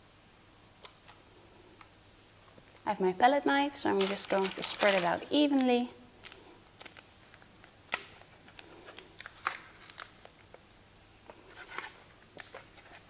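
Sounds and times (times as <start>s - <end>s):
baking paper crinkling: 3.7s - 10.6s.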